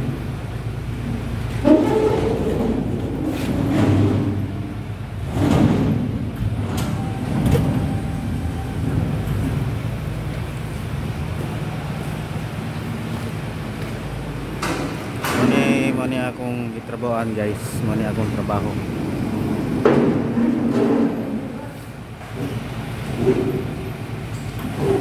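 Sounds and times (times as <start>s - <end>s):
steady low hum: 0.0s - 25.0s
knocks and clanks on metal deck: 1.1s - 9.8s, 13.8s - 15.8s, 18.2s - 21.6s, 22.2s - 25.0s.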